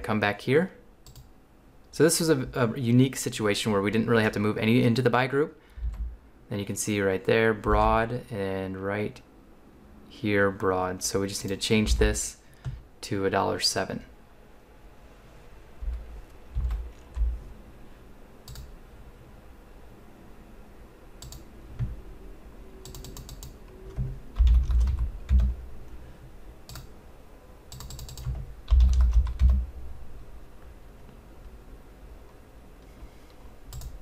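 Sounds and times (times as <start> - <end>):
keyboard typing: 1.0 - 1.3, 5.8 - 6.1, 15.8 - 17.5, 18.4 - 18.7, 21.2 - 21.9, 22.8 - 25.6, 26.7 - 26.9, 27.7 - 29.6, 33.7 - 34.0.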